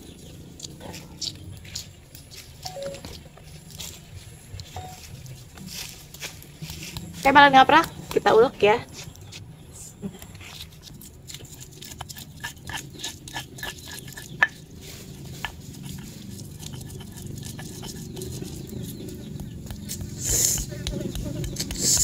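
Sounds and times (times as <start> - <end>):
stone pestle grinding rasp: 10.4 - 22.0
stone pestle knocking and crunching: 10.8 - 22.0.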